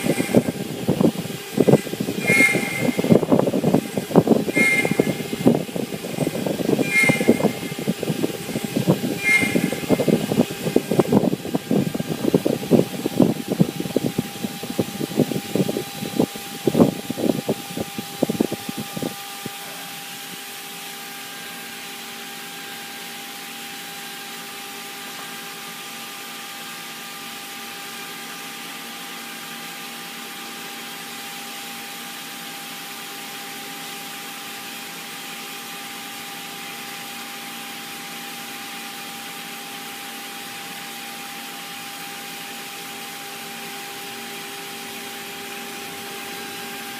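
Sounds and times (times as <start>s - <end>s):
router spindle motor whine: 0.0s - 20.0s.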